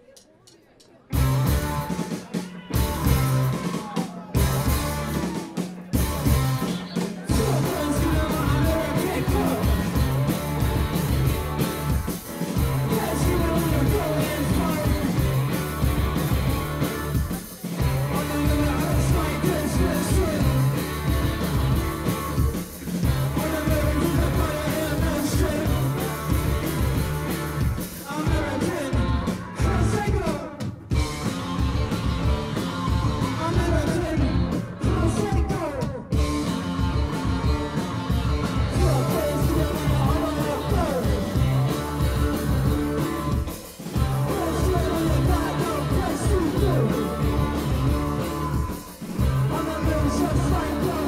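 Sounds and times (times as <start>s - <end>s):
live rock band playing: 1.1s - 51.0s
person singing: 1.6s - 15.7s, 16.4s - 21.4s, 22.0s - 26.6s, 28.0s - 30.8s, 37.0s - 51.0s.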